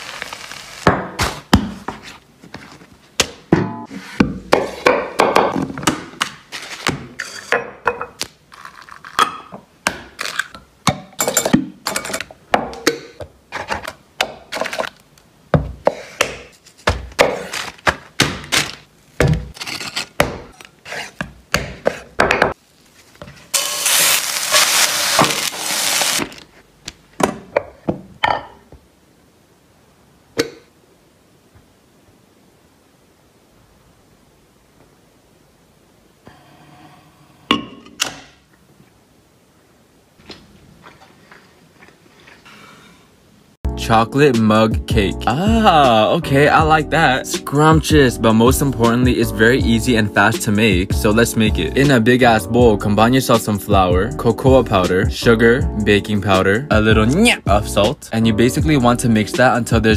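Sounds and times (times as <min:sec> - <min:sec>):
steady hiss: 0:00.0 - 0:02.0, 0:22.6 - 0:26.8.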